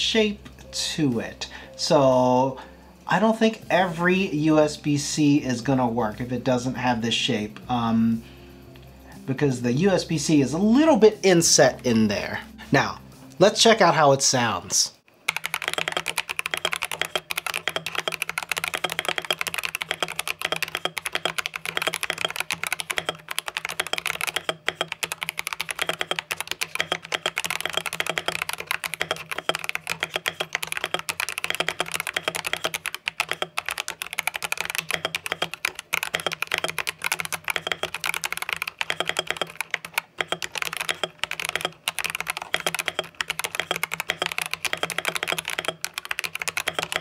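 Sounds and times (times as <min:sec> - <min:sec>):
keyboard key clacks: 0:15.3 - 0:47.0.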